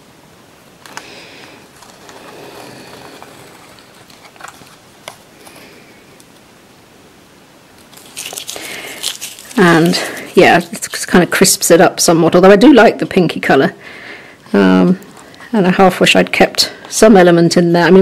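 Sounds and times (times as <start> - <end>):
paper tape peeling: 0.8 - 5.6, 7.8 - 11.1.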